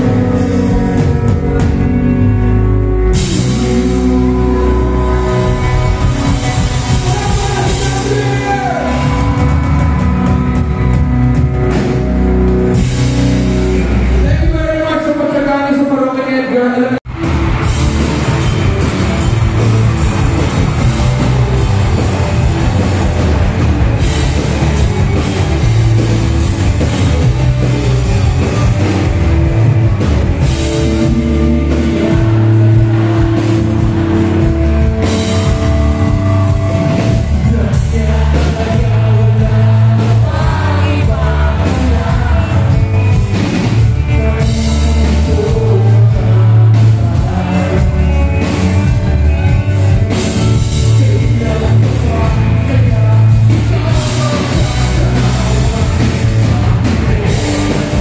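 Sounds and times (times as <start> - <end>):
electric guitar: 0.0 - 14.6, 16.8 - 58.0
bass guitar: 0.0 - 15.1, 16.9 - 58.0
drums: 0.0 - 16.0, 17.0 - 58.0
person singing: 3.0 - 10.9, 30.4 - 58.0.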